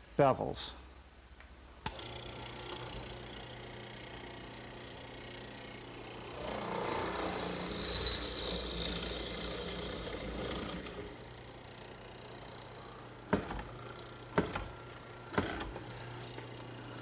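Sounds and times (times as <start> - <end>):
chisel boring into wood: 1.8 - 16.6
mortiser motor humming: 1.9 - 17.0.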